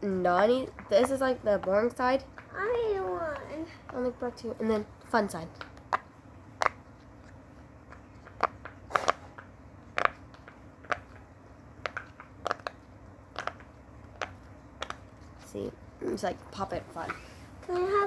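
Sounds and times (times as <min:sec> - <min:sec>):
fidget toy bubbles popping: 0:07.8 - 0:15.1.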